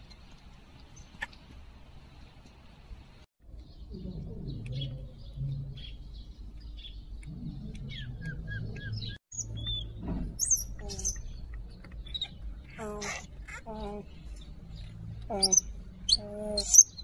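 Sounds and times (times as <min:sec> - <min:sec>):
baby monkeys chirping: 0:08.0 - 0:17.0.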